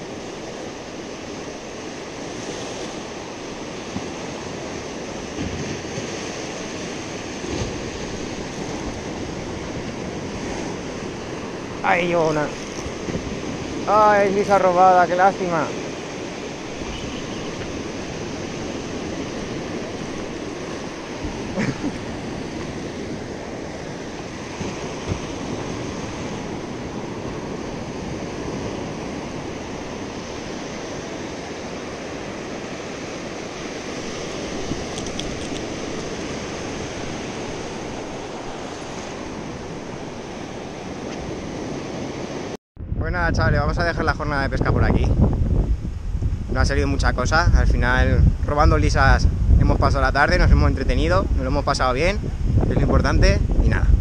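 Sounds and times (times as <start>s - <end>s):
waves washing up a beach: 0.0s - 42.6s.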